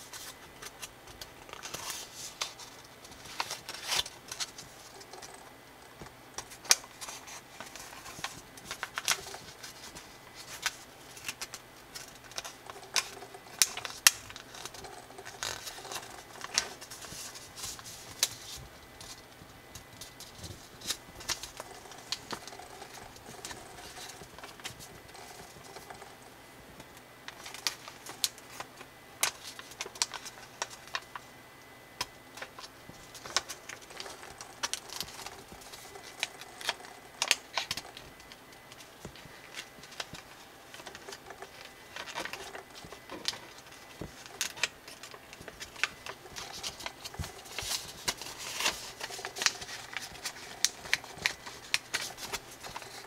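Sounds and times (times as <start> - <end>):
paper being folded and creased: 0.0 - 5.5, 6.4 - 19.2, 19.8 - 26.2, 27.3 - 31.2, 32.0 - 53.0.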